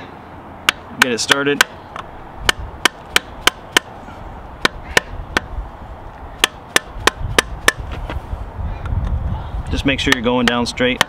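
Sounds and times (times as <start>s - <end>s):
mallet tapping on plastic pipe: 0.7s - 1.8s, 6.4s - 7.8s, 10.1s - 11.0s.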